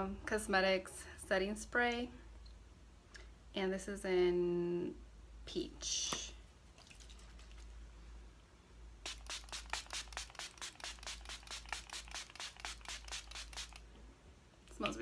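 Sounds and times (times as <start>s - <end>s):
spray bottle hissing: 9.0s - 13.8s.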